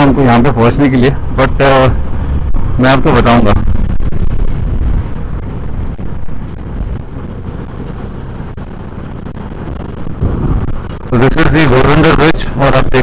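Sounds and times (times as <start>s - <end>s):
wind rushing over microphone: 0.0s - 13.0s
motorcycle engine running: 1.2s - 11.2s.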